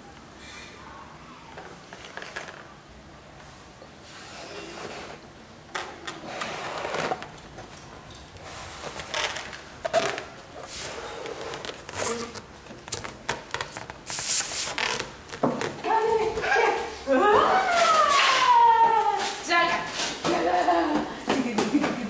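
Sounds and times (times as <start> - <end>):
toys knocking and rustling: 1.5 - 2.7.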